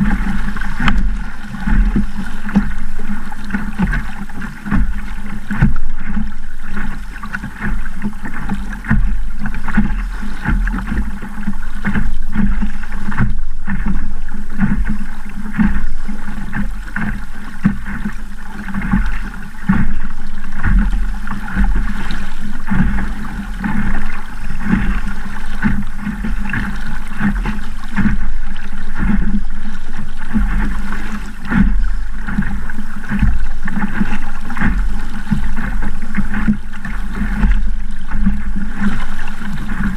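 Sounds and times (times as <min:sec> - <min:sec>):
waves slapping against hull: 0:00.0 - 0:39.9.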